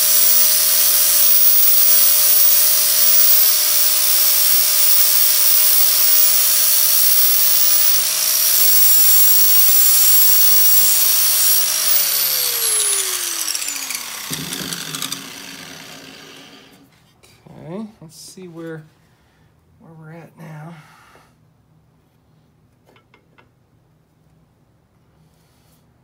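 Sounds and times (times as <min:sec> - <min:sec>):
angle grinder grinding metal: 0:00.0 - 0:16.8
grinder winding down whine: 0:00.0 - 0:16.8.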